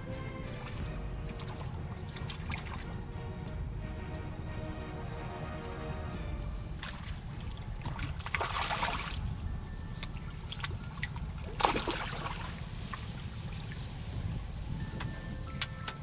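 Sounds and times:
fish thrashing and water splashing: 0:00.4 - 0:03.2, 0:06.7 - 0:14.2.

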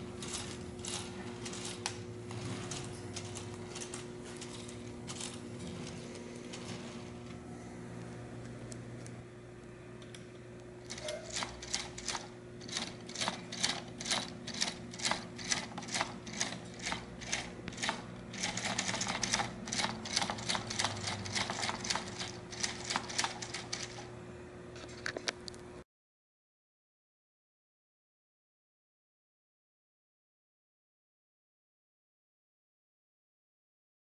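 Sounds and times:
steady low hum: 0:00.0 - 0:25.8.

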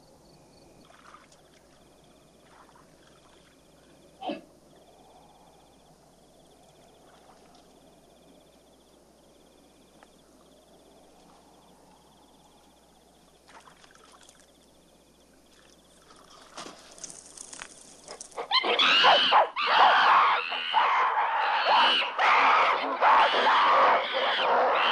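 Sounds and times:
ape shrieking and screaming: 0:18.4 - 0:24.9.

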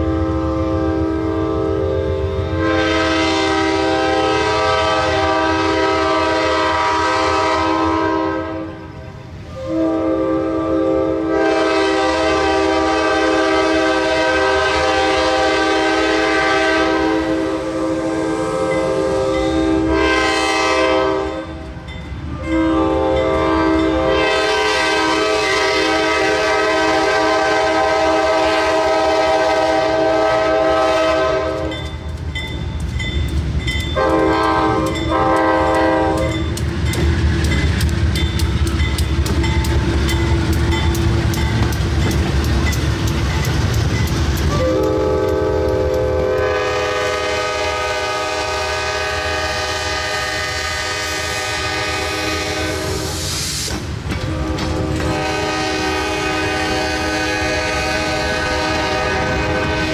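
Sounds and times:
locomotive air horn: 0:00.0 - 0:31.8, 0:34.0 - 0:36.6, 0:44.5 - 0:53.3, 0:54.2 - 0:59.9
locomotive engine rumble: 0:21.2 - 0:59.9
train wheel clicks: 0:31.5 - 0:46.6, 0:53.0 - 0:55.2.

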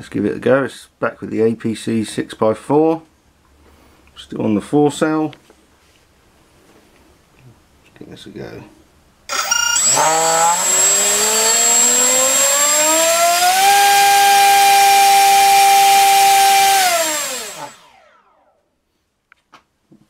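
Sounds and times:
electric motor propeller whine: 0:09.3 - 0:18.7.

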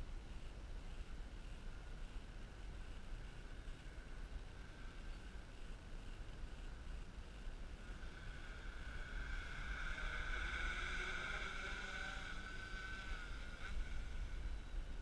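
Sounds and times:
drone propellers whining: 0:07.0 - 0:15.0.

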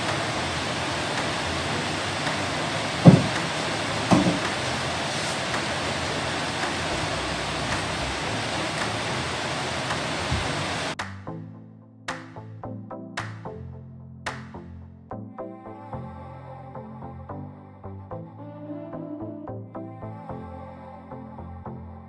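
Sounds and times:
steady hiss: 0:00.0 - 0:11.0
panel box cover thumping shut: 0:03.0 - 0:03.4, 0:04.1 - 0:04.5.

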